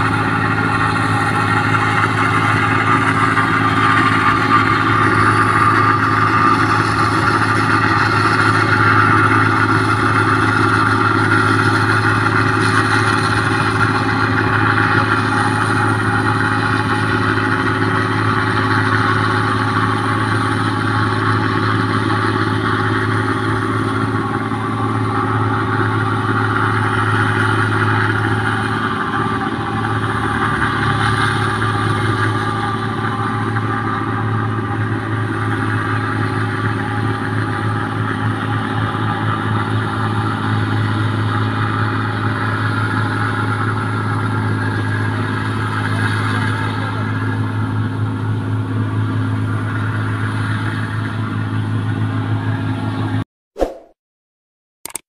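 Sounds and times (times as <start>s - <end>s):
combine harvester engine running: 0.0s - 53.2s
threshing machinery noise: 0.0s - 53.2s.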